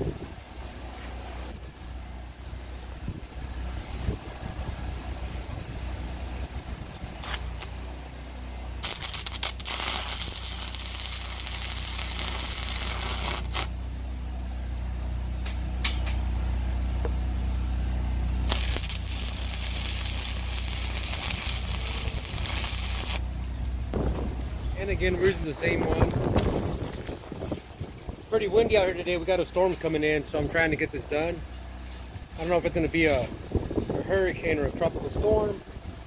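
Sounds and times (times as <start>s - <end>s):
low steady rumble: 0.0s - 36.0s
welding arc crackling and hissing: 7.2s - 7.8s, 8.8s - 13.7s, 18.5s - 23.3s.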